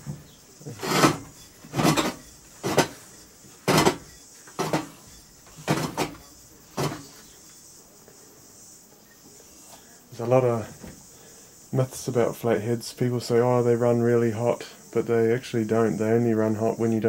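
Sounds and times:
engine crank turning rasps: 0.8s - 6.2s.

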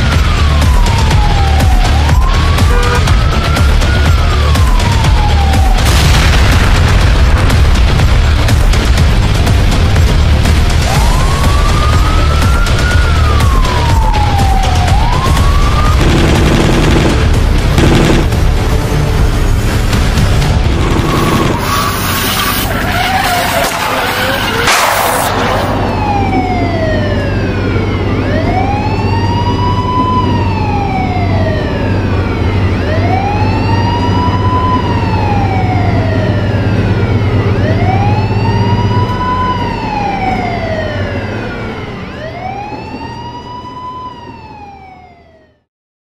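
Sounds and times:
police siren wailing: 0.0s - 6.1s, 10.1s - 18.2s, 20.1s - 45.7s
loud crash: 23.3s - 26.1s.

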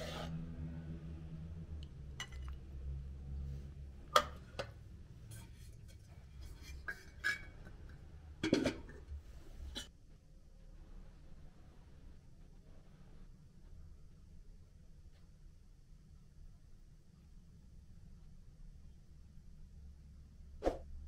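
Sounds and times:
ladle clinking on metal pot: 2.2s - 2.6s, 5.3s - 9.0s
metal lid clattering on pot: 5.9s - 9.1s.

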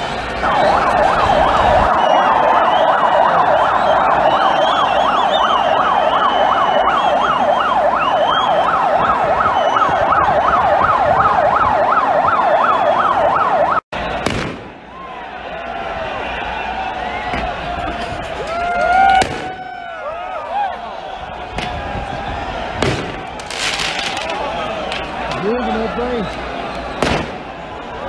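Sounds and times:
wavering whistle-like tones: 0.4s - 8.8s
electronic siren yelping: 0.4s - 13.8s.

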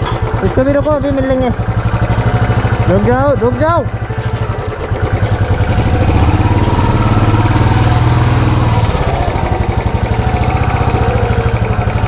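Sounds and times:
motorcycle engine idling: 0.0s - 12.0s.

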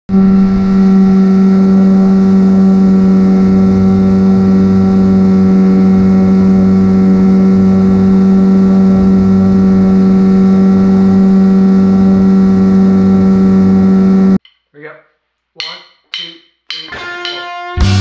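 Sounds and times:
outboard motor running: 0.1s - 14.4s.

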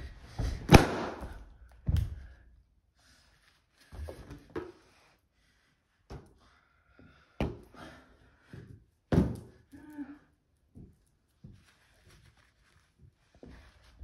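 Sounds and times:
balloons thudding: 0.4s - 2.3s, 9.1s - 9.6s.

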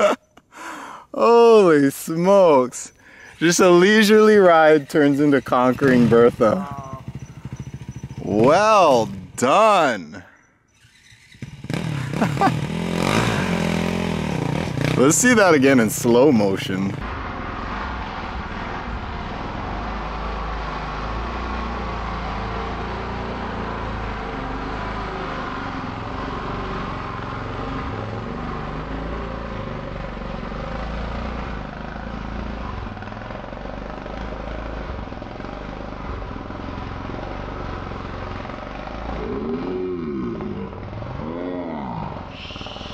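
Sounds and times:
slowed dirt bike engine drone: 0.0s - 42.9s.

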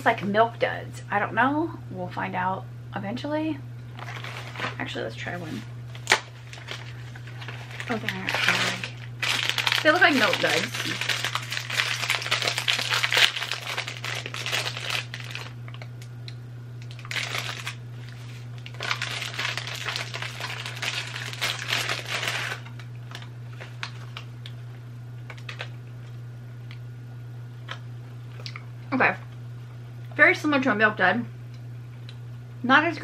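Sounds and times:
steady low hum: 0.0s - 33.0s
candy packaging crinkling: 4.0s - 5.0s, 5.9s - 16.0s, 16.8s - 24.6s.

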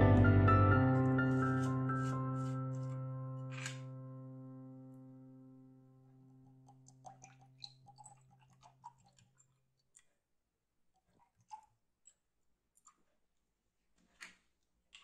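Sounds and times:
soft background music: 0.0s - 6.0s.

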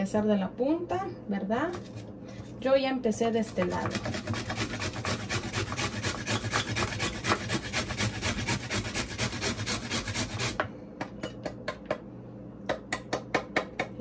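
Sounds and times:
carrot grated on metal grater: 3.4s - 10.6s.

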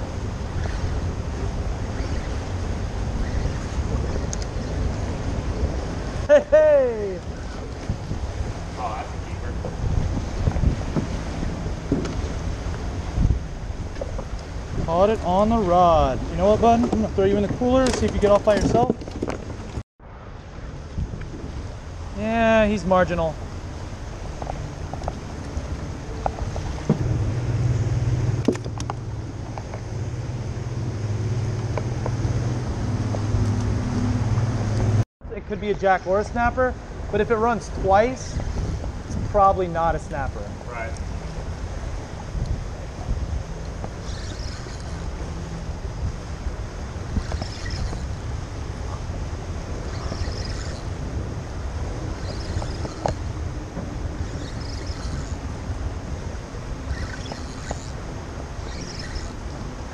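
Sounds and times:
low mechanical hum: 0.0s - 59.9s
wind buffeting microphone: 0.0s - 59.9s
water lapping and splashing: 7.2s - 19.8s, 23.4s - 33.8s, 41.0s - 59.9s.

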